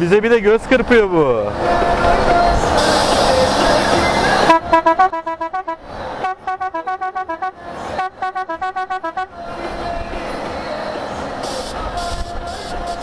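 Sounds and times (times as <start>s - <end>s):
musical car horn beeping: 2.8s - 9.8s, 11.4s - 13.0s.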